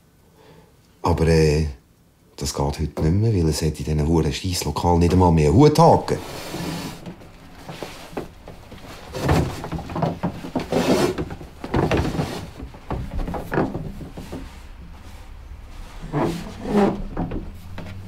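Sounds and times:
fabric rustling: 6.0 - 18.0
light knocks and thumps: 6.9 - 15.2, 16.1 - 18.0.

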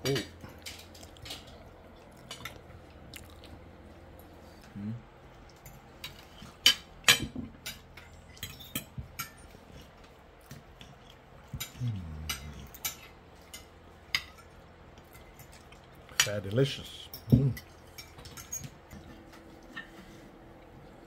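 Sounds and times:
cutlery clinking on a plate: 5.6 - 9.6, 17.1 - 20.0.

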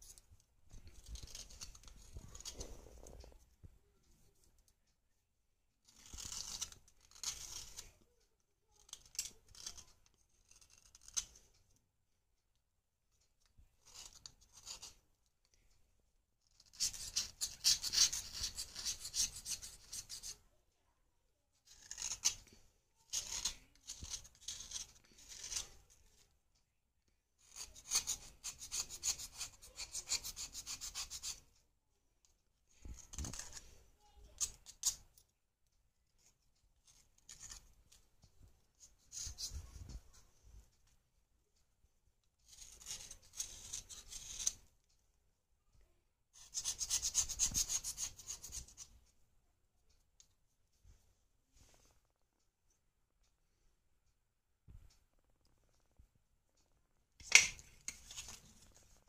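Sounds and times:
knife scraping bread: 5.9 - 7.9, 16.6 - 20.3, 21.7 - 25.8, 27.4 - 31.4, 42.5 - 44.6, 46.4 - 48.9.

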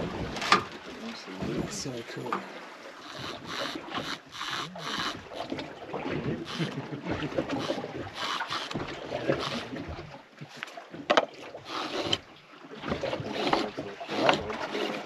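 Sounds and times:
water splashing against boat hull: 0.0 - 15.0.

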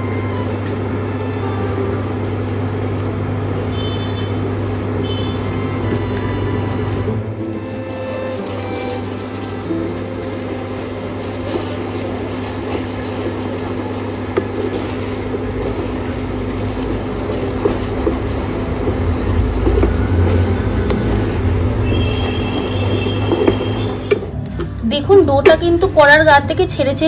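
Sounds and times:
thick dough bubbling: 0.0 - 25.8
steady low hum: 0.0 - 27.0
wooden spatula scraping a pan: 7.6 - 24.2.

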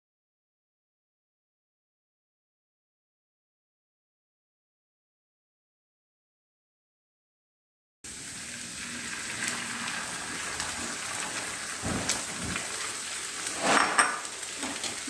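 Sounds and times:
eggs sizzling in frying pan: 8.0 - 15.0
spatula scraping pan: 10.7 - 15.0.

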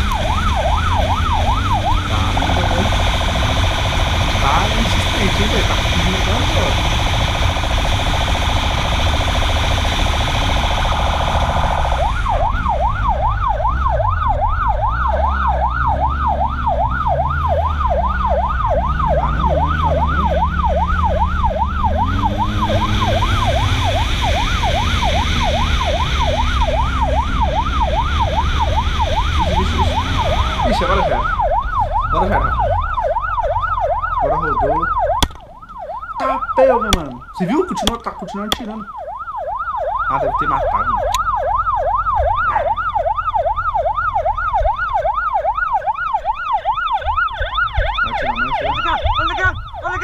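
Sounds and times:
electronic siren wailing and yelping: 0.0 - 50.0
motorcycle engine rumble: 0.0 - 50.0
wind rumble: 40.8 - 50.0.

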